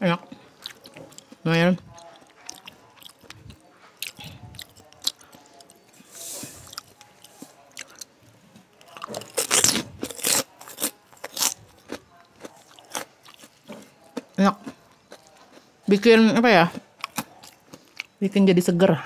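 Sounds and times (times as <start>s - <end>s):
wet chewing: 0.3s - 15.8s, 16.6s - 18.2s
cracker crunching: 0.4s - 15.7s, 16.7s - 18.2s.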